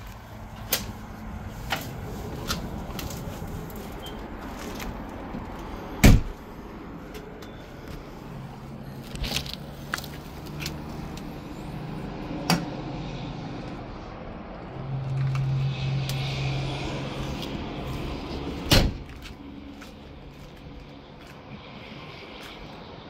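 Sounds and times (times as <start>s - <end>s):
sharp loud thump: 6.0s - 6.4s, 18.7s - 19.1s.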